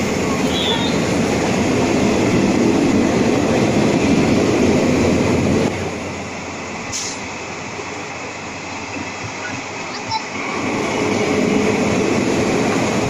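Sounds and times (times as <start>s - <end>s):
train wheels rumbling on track: 0.0s - 13.0s
short high hiss: 6.9s - 7.3s.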